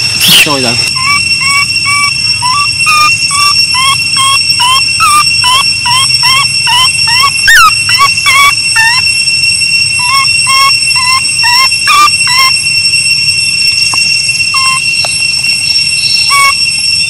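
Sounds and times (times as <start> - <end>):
baby monkey squealing: 0.3 - 9.2, 9.9 - 12.6, 13.9 - 15.1, 16.0 - 16.6.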